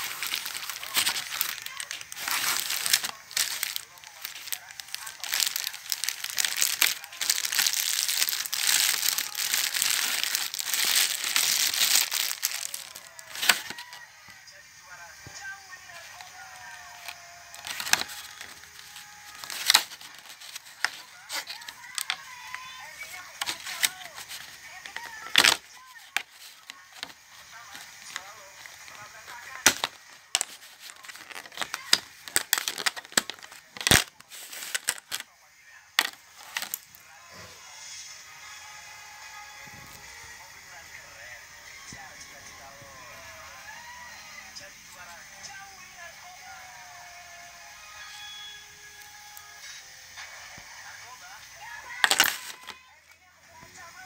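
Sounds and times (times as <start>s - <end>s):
plastic bag crinkling: 0.0s - 14.0s, 15.9s - 35.2s, 36.0s - 36.9s, 51.9s - 52.8s.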